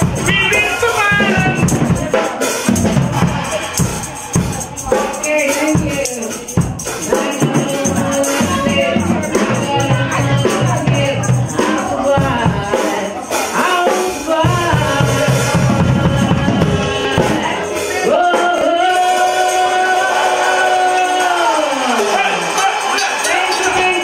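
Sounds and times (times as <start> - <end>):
tambourine shaking: 0.0 - 15.0, 16.9 - 24.0
backing music: 0.0 - 24.0
woman singing into microphone: 4.5 - 21.9.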